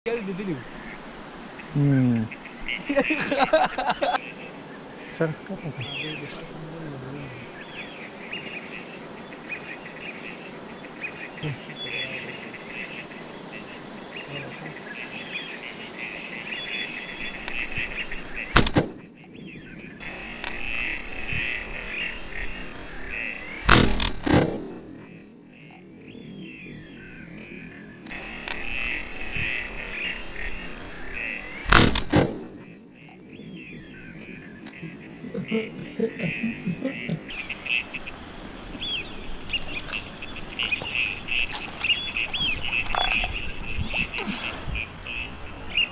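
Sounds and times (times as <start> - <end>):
sharp clicks: 18.5 - 19.0, 20.4 - 20.8, 28.0 - 29.0, 31.6 - 32.6
shotgun blasts: 18.5 - 19.0, 23.6 - 24.8, 31.6 - 32.6
rapid high chirping calls: 37.3 - 45.9.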